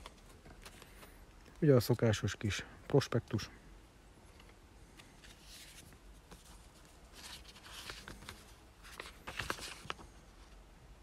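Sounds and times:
paper leaflets rustling: 0.0 - 1.2, 4.9 - 10.6.

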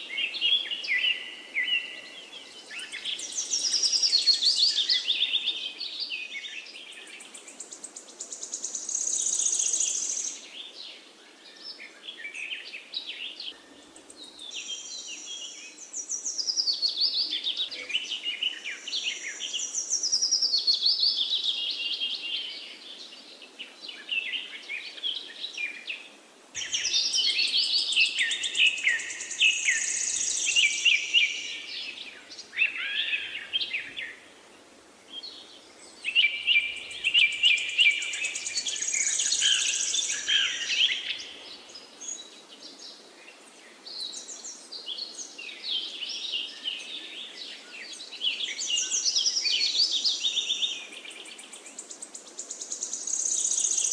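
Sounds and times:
birds chirping and singing: 26.6 - 34.3, 35.1 - 42.9, 43.8 - 53.9.

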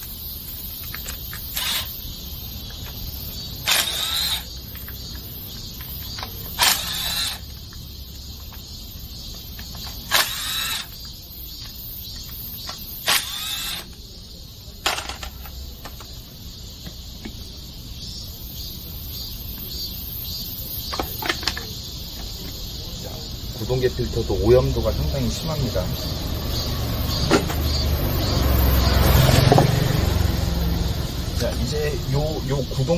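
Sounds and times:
cordless drill whirring: 1.5 - 2.0, 3.6 - 4.5, 6.6 - 7.5, 10.1 - 11.0, 13.0 - 14.0.

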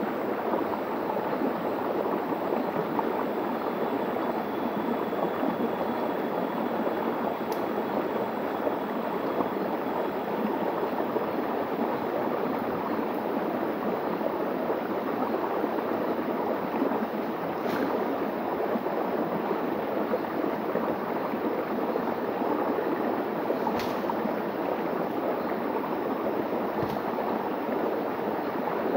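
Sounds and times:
stream running over rocks: 0.0 - 28.9.

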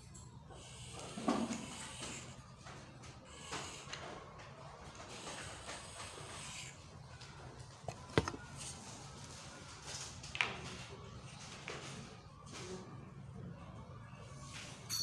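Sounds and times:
chalk scraping on blackboard: 0.7 - 2.4.

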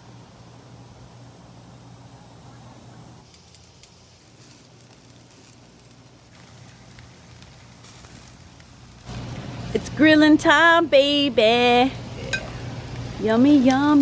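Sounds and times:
small crackles: 3.2 - 10.7, 12.5 - 14.0
food sizzling on a grill: 3.2 - 14.0.

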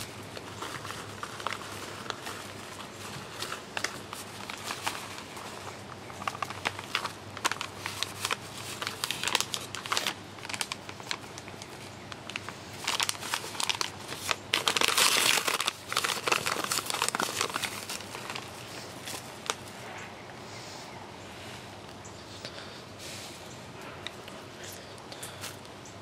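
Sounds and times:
plastic bag crinkling: 0.0 - 19.9.

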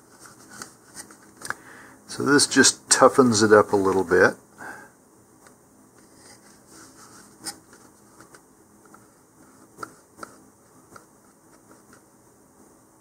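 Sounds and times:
soft rubbing and scratching: 0.0 - 1.3, 6.0 - 8.4.

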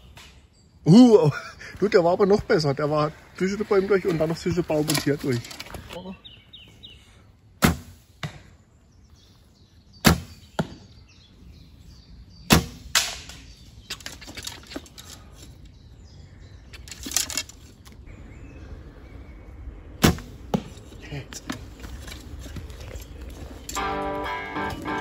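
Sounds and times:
arrow striking foam target: 7.6 - 8.5, 10.0 - 10.8, 12.5 - 13.4, 20.0 - 20.7.

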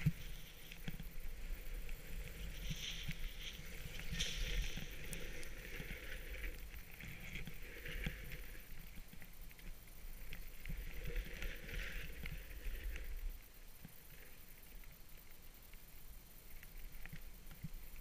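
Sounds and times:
skis scraping over snow: 0.0 - 13.3.

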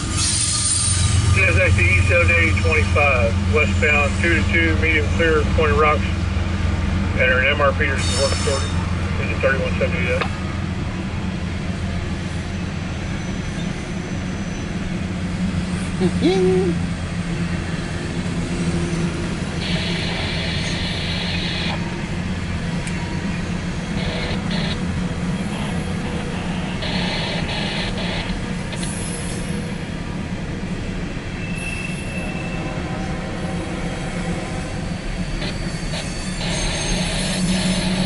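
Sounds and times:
freight train wheels rumbling on rail: 0.0 - 38.0
high-pitched wheel noise: 34.3 - 38.0.

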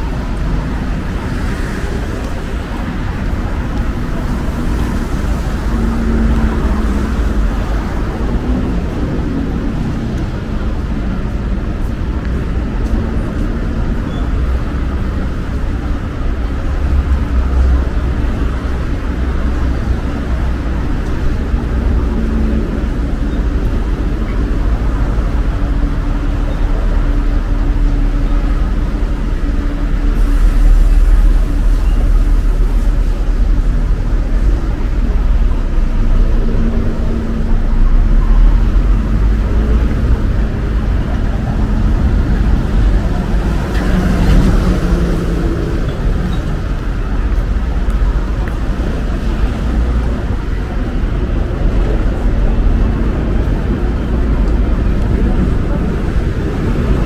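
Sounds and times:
road traffic rumble: 0.0 - 57.0.

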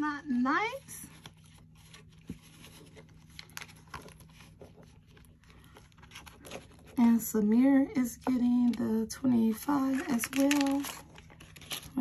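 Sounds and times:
paper bills rustling: 0.7 - 7.2, 9.7 - 12.0.

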